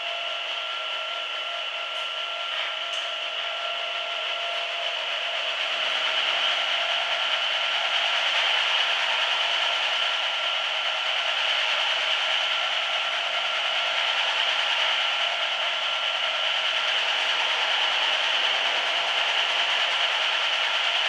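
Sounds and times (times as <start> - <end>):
rug dusting machine rushing: 4.3 - 21.0.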